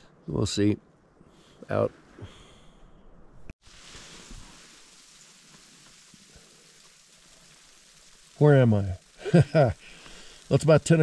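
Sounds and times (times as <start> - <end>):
frozen rain pattering on a tent: 3.6 - 11.0.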